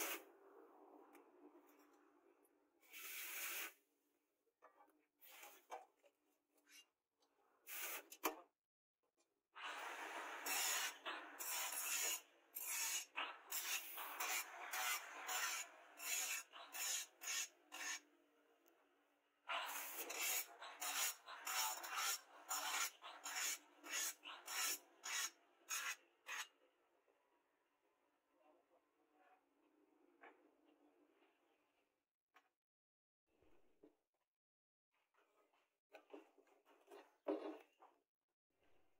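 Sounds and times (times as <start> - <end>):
abrasive tool rasping on steel blade: 10.5 - 18.0, 19.7 - 26.5.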